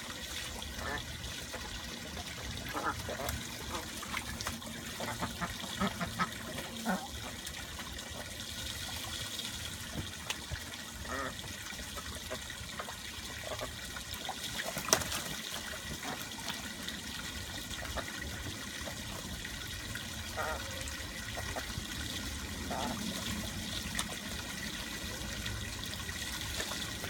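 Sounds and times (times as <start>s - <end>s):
water trickling: 0.0s - 27.0s
ducks splashing in water: 0.1s - 27.0s.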